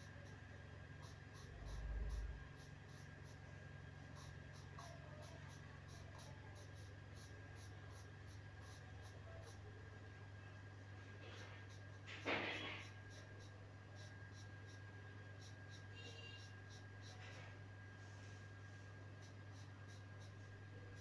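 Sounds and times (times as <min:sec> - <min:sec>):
steady low hum: 0:00.0 - 0:21.0
pencil scratching on paper: 0:11.2 - 0:14.8.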